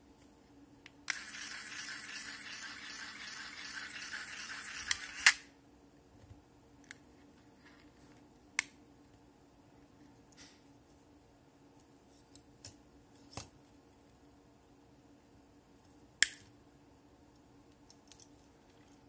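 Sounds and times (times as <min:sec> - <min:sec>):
small electric motor whirring: 0:01.1 - 0:05.4.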